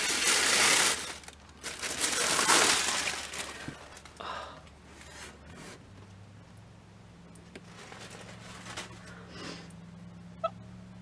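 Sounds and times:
tissue paper crinkling: 0.0s - 4.2s.

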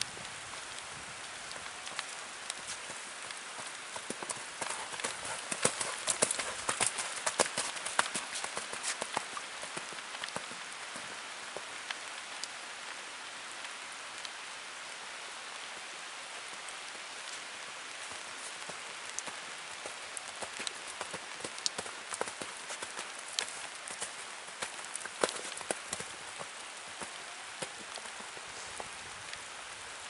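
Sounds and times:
steady hiss: 0.0s - 30.0s
hoofbeats on sand: 1.6s - 11.6s, 18.1s - 29.0s.

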